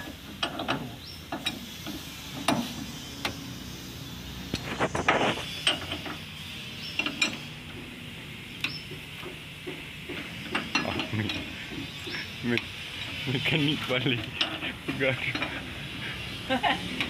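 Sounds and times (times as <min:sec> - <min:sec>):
metal tools knocking on engine: 0:14.0 - 0:16.0.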